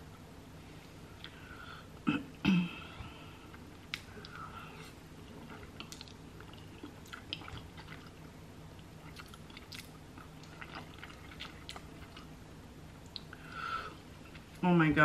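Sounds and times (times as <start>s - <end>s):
wet chewing mouth clicks: 9.0s - 12.3s.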